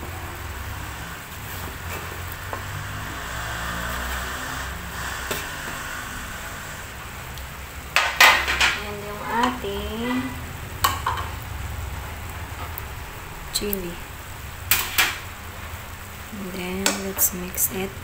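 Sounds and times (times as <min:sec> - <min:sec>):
food sizzling in a frying pan: 0:00.0 - 0:18.0
person speaking: 0:08.8 - 0:10.4, 0:13.5 - 0:14.2.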